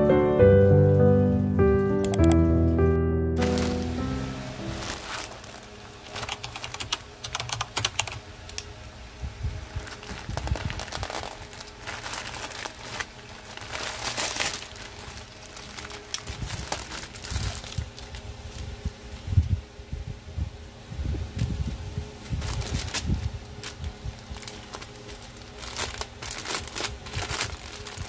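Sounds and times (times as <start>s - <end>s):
plastic mailer crinkling and tearing: 3.4s - 7.1s, 9.7s - 18.8s, 22.2s - 28.0s.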